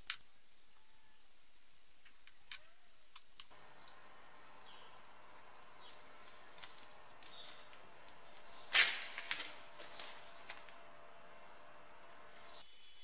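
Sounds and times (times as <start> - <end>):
sharp paper rustle: 8.4 - 10.8.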